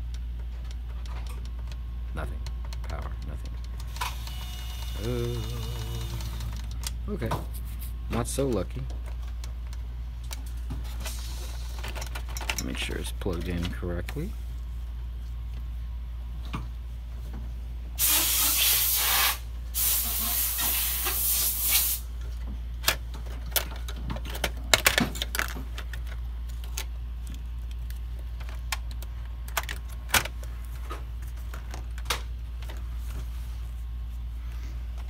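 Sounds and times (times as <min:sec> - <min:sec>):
hissing spray bursts: 0:18.0 - 0:22.1.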